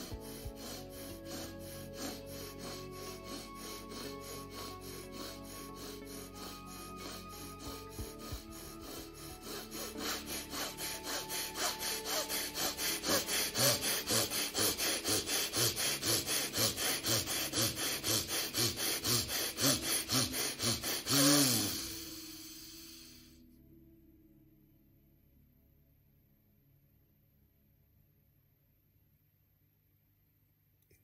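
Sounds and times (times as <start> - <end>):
forceful nostril breathing: 0.0 - 23.3
faint music: 0.0 - 25.9.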